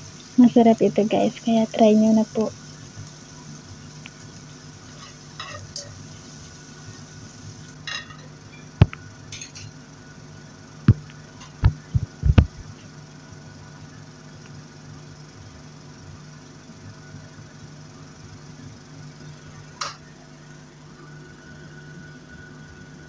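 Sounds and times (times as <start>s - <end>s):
steady low hum: 0.0s - 23.0s
pan and dishes clinking: 5.0s - 6.0s, 7.8s - 8.7s, 9.3s - 9.8s.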